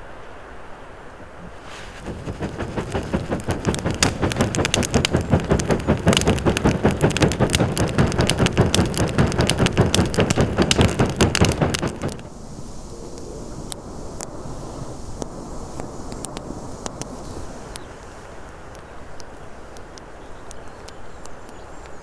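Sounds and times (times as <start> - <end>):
hand fan whooshing strokes: 1.5 - 12.4
fire crackling and popping: 1.6 - 22.0.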